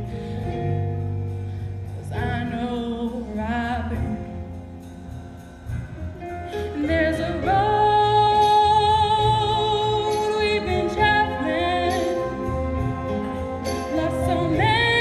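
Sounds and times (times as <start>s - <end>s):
musical accompaniment: 0.0s - 15.0s
person singing with vibrato: 6.5s - 15.0s.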